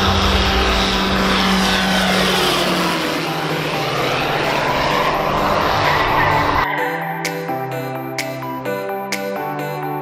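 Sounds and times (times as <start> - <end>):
propeller airplane passing low: 0.0 - 7.0.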